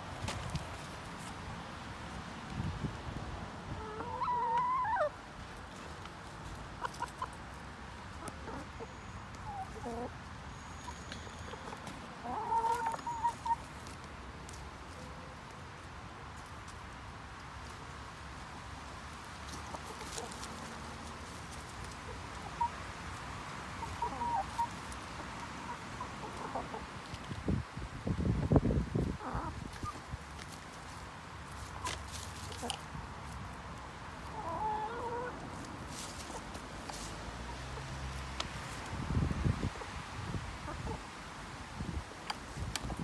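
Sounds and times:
chickens scratching in dry leaves: 0:00.0 - 0:43.0
hens clucking softly: 0:03.7 - 0:05.2, 0:05.8 - 0:07.4, 0:08.1 - 0:10.2, 0:10.8 - 0:14.0, 0:19.4 - 0:23.2, 0:23.8 - 0:27.4, 0:29.0 - 0:30.5, 0:34.2 - 0:38.8, 0:40.6 - 0:41.1
wind on microphone: 0:27.4 - 0:29.9, 0:38.8 - 0:41.0.

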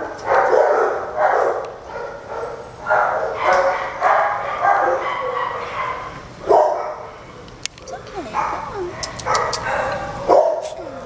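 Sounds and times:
dogs barking and yipping: 0:00.0 - 0:11.0
sharp clicks: 0:09.0 - 0:09.7.

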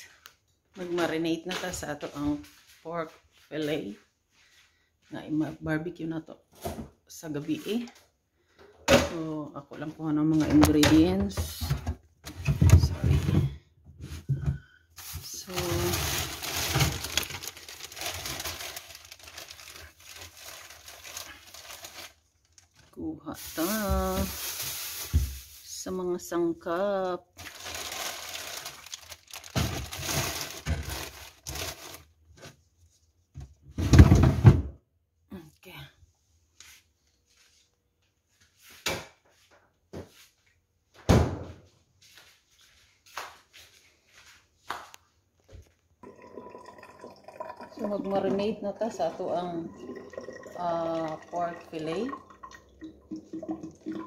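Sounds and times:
plastic packaging crinkling: 0:15.0 - 0:25.8, 0:27.3 - 0:32.3.

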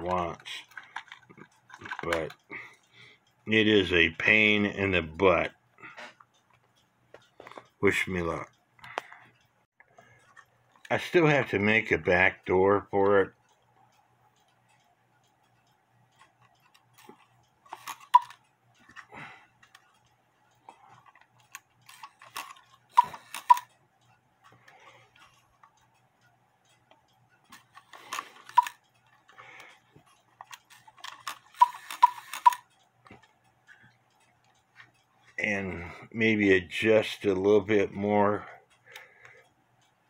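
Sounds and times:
clock parts clicking and clinking: 0:00.0 - 0:40.0.

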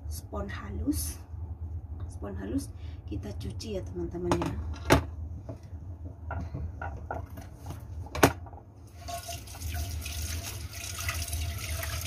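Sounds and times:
tap water splashing into a pan: 0:09.0 - 0:12.0.

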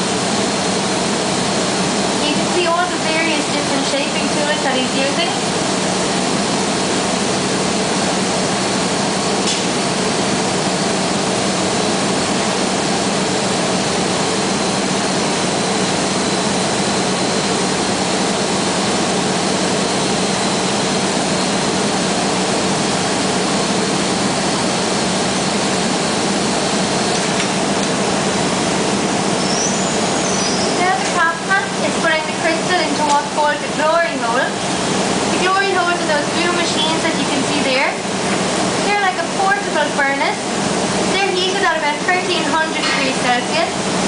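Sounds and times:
furnace roar: 0:00.0 - 0:44.0.

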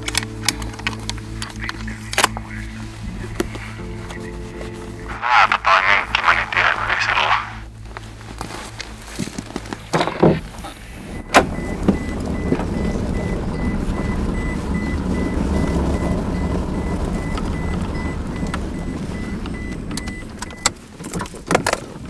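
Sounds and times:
engine and road rumble: 0:00.0 - 0:22.0
faint high pulsing tone: 0:00.1 - 0:09.2.

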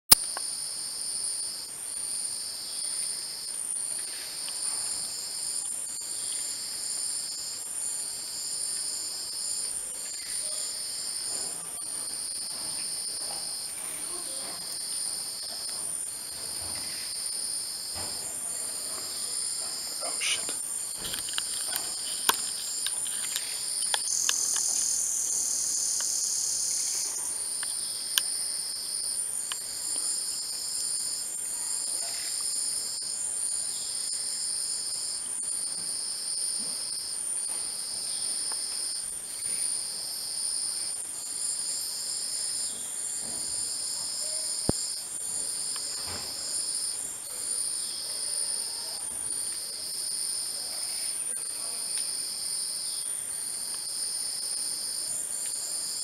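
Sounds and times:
high-pitched insect whine: 0:00.1 - 0:56.0
insect long even calls: 0:00.2 - 0:56.0.

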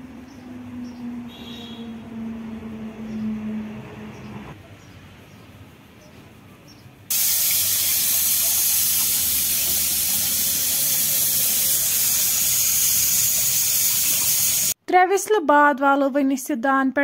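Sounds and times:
pressure cooker steam hiss: 0:07.1 - 0:14.8.

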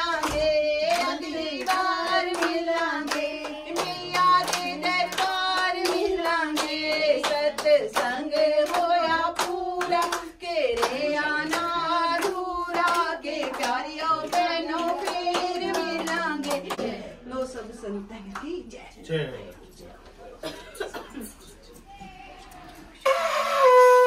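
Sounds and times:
group singing a hymn: 0:00.0 - 0:17.4
hand clapping in time: 0:00.2 - 0:16.9.

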